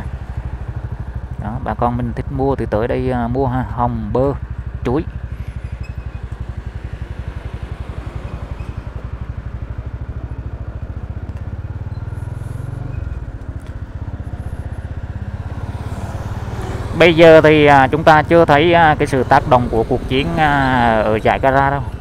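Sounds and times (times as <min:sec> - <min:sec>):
vehicle drone: 0:00.0 - 0:22.0
small motorbike engine putter: 0:08.2 - 0:14.4.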